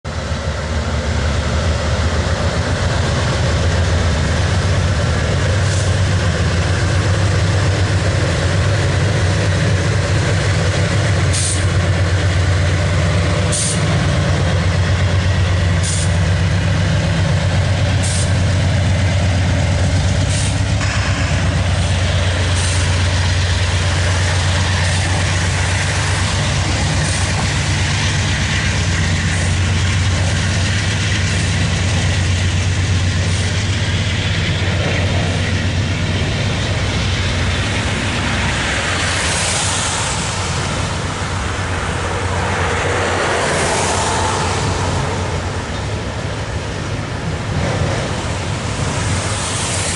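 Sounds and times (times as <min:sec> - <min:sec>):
freight train rumbling past: 0:00.0 - 0:49.9
sharp rail clicks: 0:01.5 - 0:41.3.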